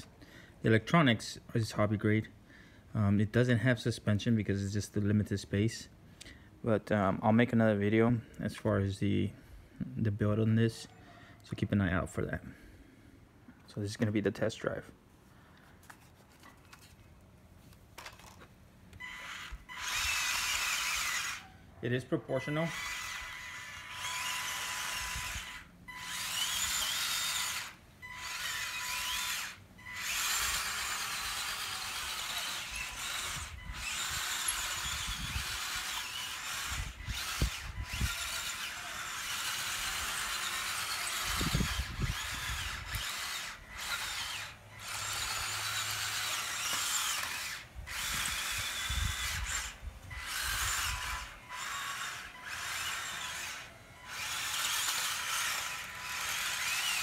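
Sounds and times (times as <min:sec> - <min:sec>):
small electric motor whining: 0:18.0 - 0:57.0.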